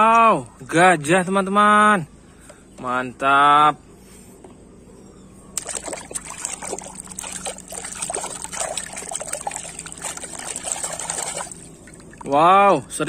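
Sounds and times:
hand scrubbing plastic toy: 0:05.6 - 0:11.6
soapy water sloshing and splashing: 0:05.6 - 0:12.4.

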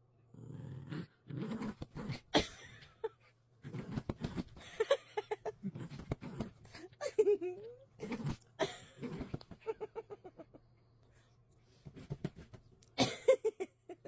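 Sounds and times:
dog growling: 0:00.3 - 0:02.4, 0:03.6 - 0:04.6, 0:05.5 - 0:07.0, 0:08.0 - 0:09.5.

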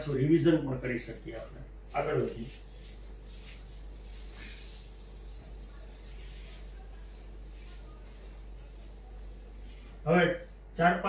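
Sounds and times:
eraser rubbing whiteboard: 0:02.0 - 0:10.7.

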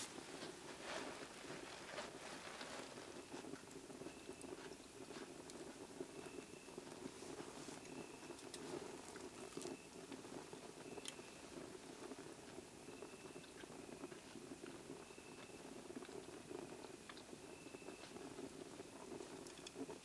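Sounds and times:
twig fire crackling and popping: 0:00.0 - 0:20.0.

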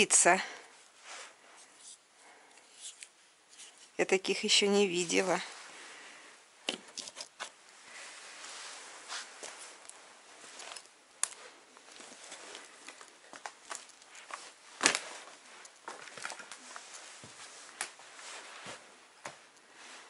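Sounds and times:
footsteps crunching on debris: 0:09.2 - 0:19.4.

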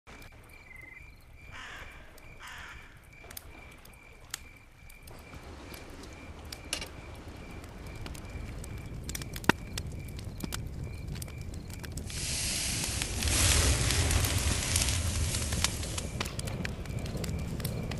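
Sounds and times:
faint high chirping: 0:00.1 - 0:05.4
crow cawing: 0:01.5 - 0:03.0.

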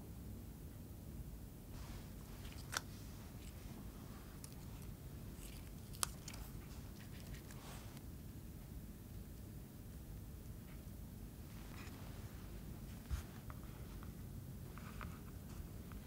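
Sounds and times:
mint leaves snapping and rustling: 0:04.3 - 0:07.8.

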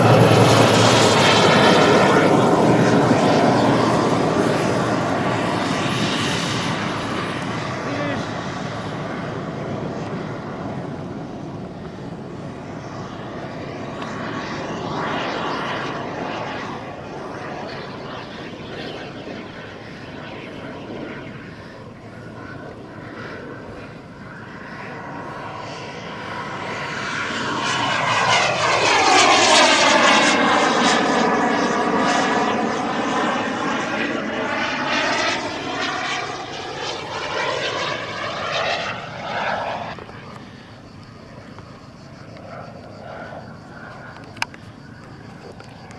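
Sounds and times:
model jet turbine rush and whine: 0:00.0 - 0:45.9.

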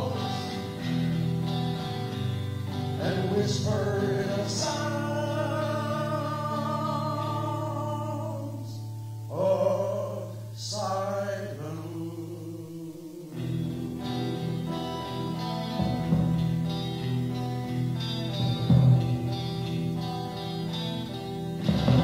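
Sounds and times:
man singing: 0:00.0 - 0:01.0, 0:02.8 - 0:14.4
electric guitar chords: 0:00.0 - 0:22.0.

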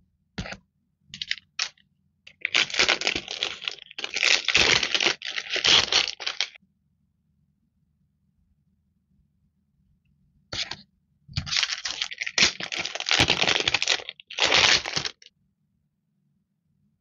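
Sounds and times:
sticker sheets crinkling: 0:02.3 - 0:06.6, 0:11.4 - 0:15.3.

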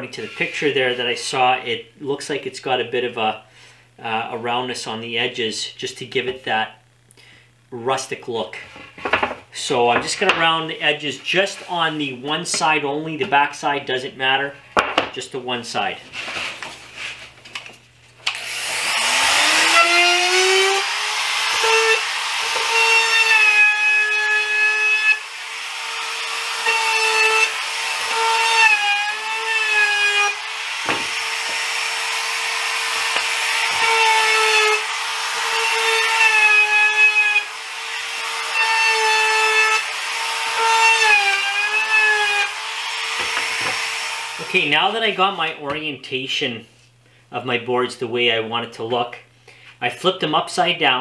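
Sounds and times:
router routing wood: 0:18.2 - 0:44.7.

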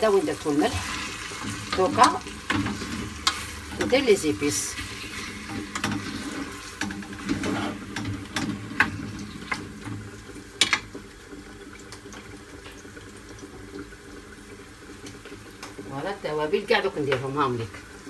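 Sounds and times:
food sizzling in a pot: 0:00.0 - 0:18.0
wooden spoon scraping a pot: 0:00.5 - 0:09.6.

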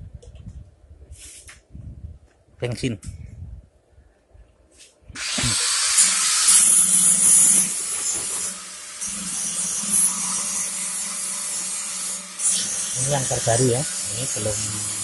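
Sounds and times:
grass chopper hissing whir: 0:05.2 - 0:06.4.

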